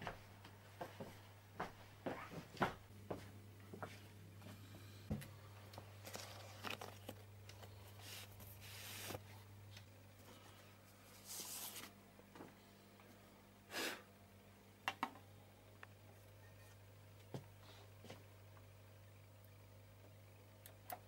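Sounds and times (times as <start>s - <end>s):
low electrical hum: 0.0s - 21.0s
record sleeves rustling: 5.8s - 9.9s, 10.9s - 12.0s.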